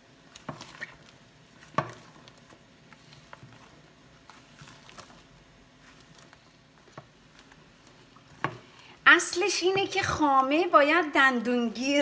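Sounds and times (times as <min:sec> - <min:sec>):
spoon stirring ice cream: 0:00.1 - 0:08.8.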